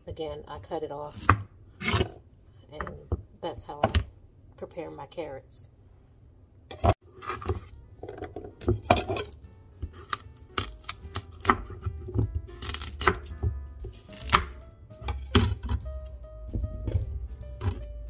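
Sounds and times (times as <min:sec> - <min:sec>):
knife chopping carrots on board: 0:09.8 - 0:14.6.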